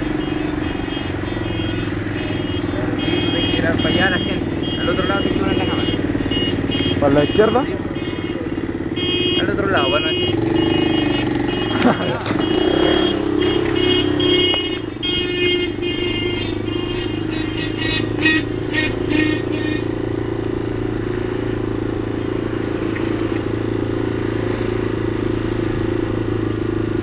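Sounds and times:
high-pitched horn toots: 0:00.0 - 0:20.0
motorcycle engine running: 0:00.0 - 0:27.0.

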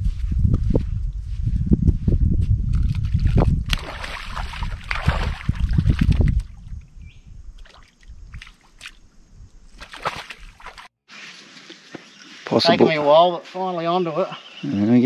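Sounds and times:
splashing in shallow water: 0:02.8 - 0:06.8, 0:07.5 - 0:10.9.

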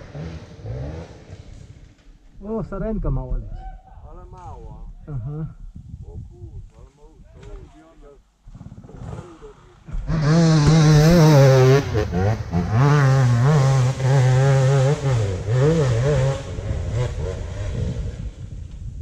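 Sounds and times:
dirt bike engine revving: 0:00.0 - 0:02.0, 0:08.5 - 0:18.6.

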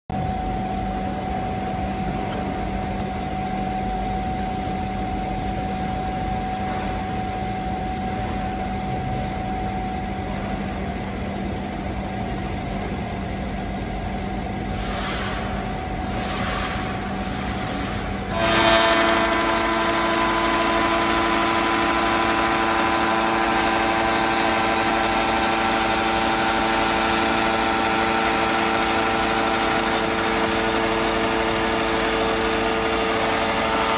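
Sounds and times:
electric motor humming: 0:18.3 - 0:33.9.

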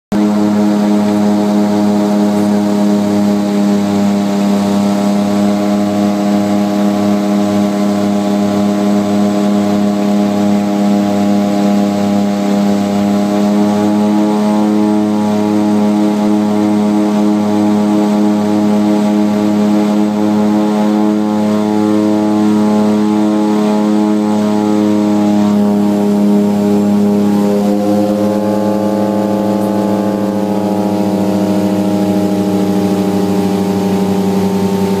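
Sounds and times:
turboprop engines droning: 0:00.1 - 0:35.0.

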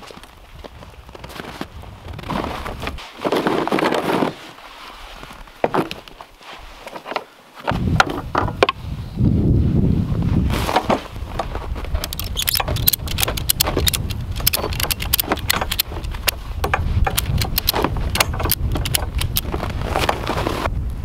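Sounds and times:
ratchet strap clicking: 0:11.9 - 0:19.6.

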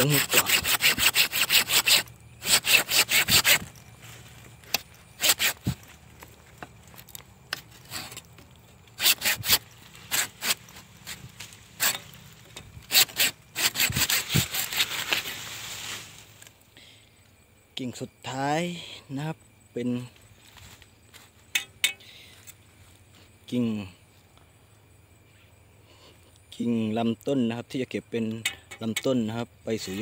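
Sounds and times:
hand saw cutting a branch: 0:00.0 - 0:03.8, 0:04.7 - 0:05.9, 0:07.5 - 0:16.1.

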